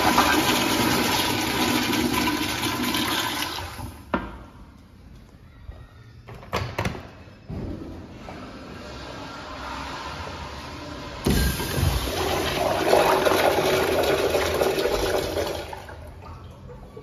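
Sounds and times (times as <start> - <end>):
urinal flushing: 0.0 - 4.1, 11.2 - 17.0.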